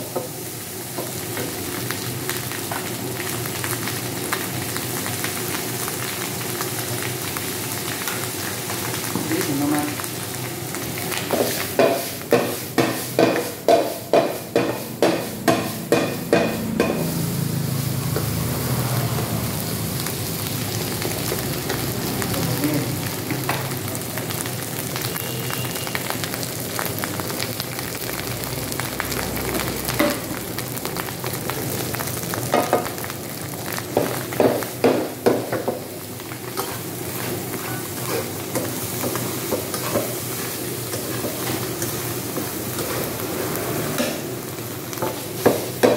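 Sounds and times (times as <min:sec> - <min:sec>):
rice sizzling: 0:00.0 - 0:45.9
metal spatula striking pan: 0:11.8 - 0:17.1.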